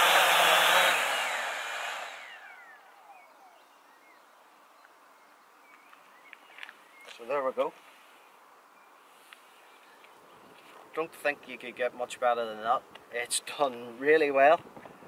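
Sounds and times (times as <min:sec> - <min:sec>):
drone propellers whirring: 0:00.0 - 0:03.2.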